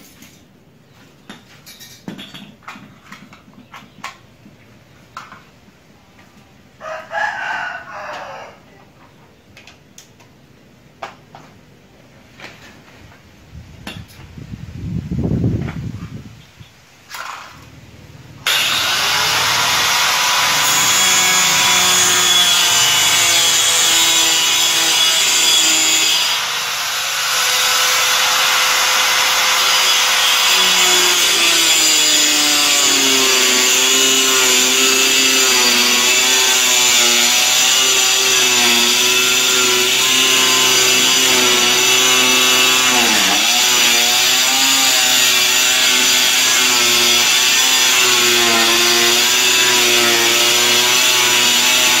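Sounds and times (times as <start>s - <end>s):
power cutter cutting board: 18.4s - 52.0s.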